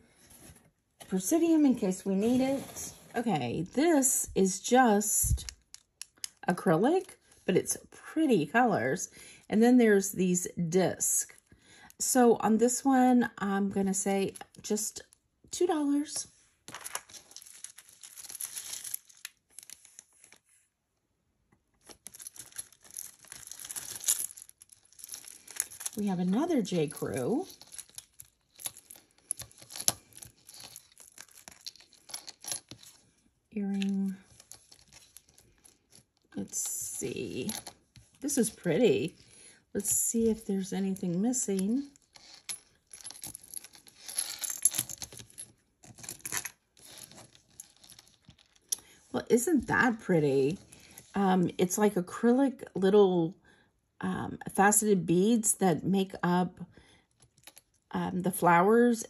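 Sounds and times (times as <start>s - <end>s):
rustling: 16.6s - 20.7s, 21.8s - 41.0s, 41.9s - 48.7s
packaging crinkling: 16.7s - 20.4s, 21.8s - 26.0s, 27.5s - 33.1s, 33.8s - 36.1s
beads and chain clicking: 16.8s - 20.0s, 21.9s - 33.0s, 41.6s - 48.8s.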